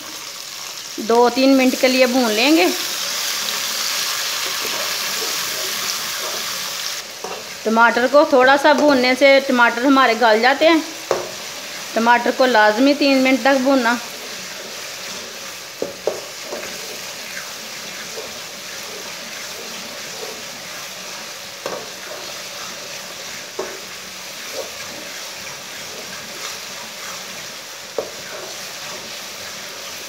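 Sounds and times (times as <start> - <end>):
vegetables sizzling in hot oil: 0.0 - 30.0
metal spatula knocking on pan: 11.1 - 11.4, 15.8 - 16.7.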